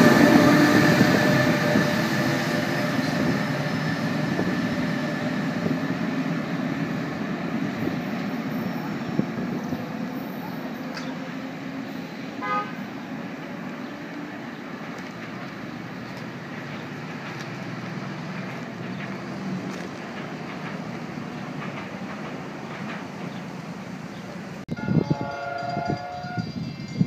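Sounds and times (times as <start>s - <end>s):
horn toot: 12.4s - 12.8s.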